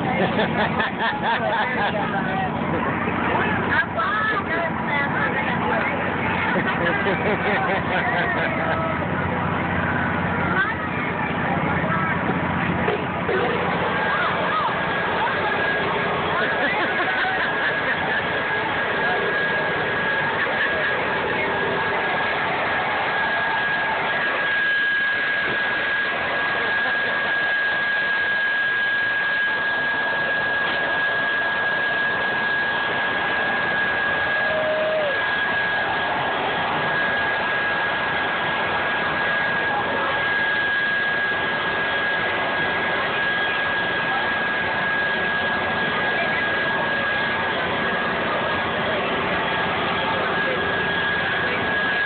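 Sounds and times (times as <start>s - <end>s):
machine drone with high whine: 0.0s - 52.0s.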